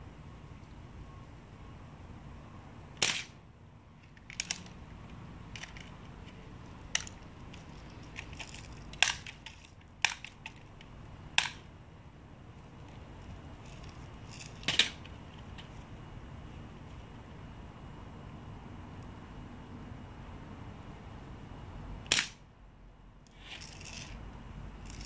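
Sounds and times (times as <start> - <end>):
bb gun pops and clicks: 3.0 - 3.4, 11.4 - 11.6, 22.1 - 22.4.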